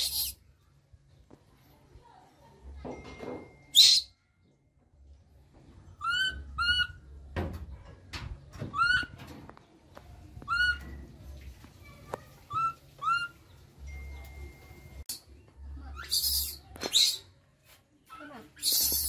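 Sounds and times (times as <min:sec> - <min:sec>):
baby monkey cooing: 0:06.0 - 0:07.0, 0:08.7 - 0:09.1, 0:10.5 - 0:10.8, 0:12.5 - 0:13.4, 0:18.1 - 0:19.0.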